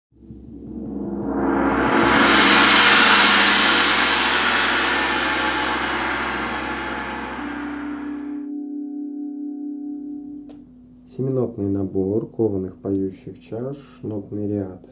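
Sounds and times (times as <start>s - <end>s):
gong ringing: 0.2s - 10.9s.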